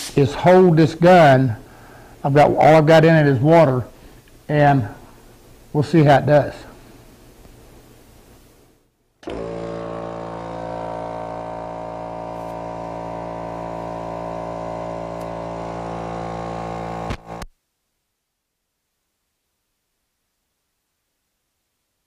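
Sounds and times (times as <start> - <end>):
air compressor running: 9.2 - 17.5.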